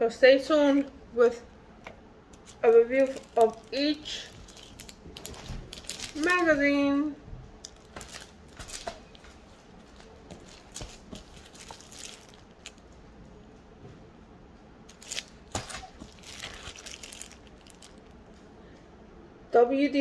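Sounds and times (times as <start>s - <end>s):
plastic sleeves crinkling: 1.8s - 6.9s, 7.6s - 12.9s, 14.9s - 18.5s.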